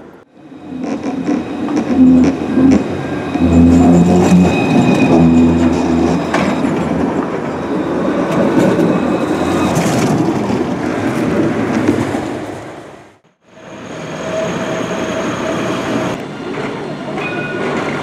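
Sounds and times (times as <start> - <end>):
tram drive hum: 0.0 - 13.0
steel wheels rumbling on rail: 0.3 - 13.0, 13.6 - 18.0.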